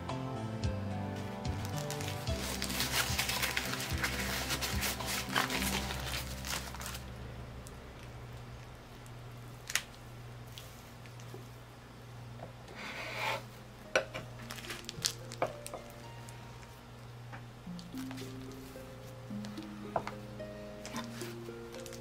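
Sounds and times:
low hum: 0.0s - 12.8s
plastic glove rustling: 1.1s - 7.2s, 14.3s - 16.8s, 17.7s - 20.2s, 20.8s - 22.0s.

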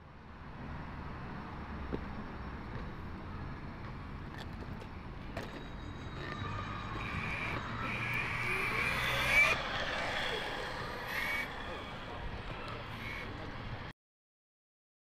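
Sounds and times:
motor whine rising in pitch: 5.7s - 13.6s.

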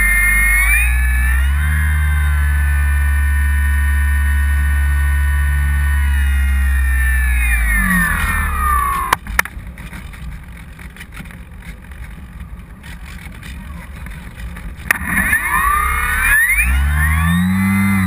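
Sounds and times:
electric motor and propeller whine: 0.0s - 9.3s, 12.2s - 18.0s
sharp clicks: 7.1s - 18.0s.

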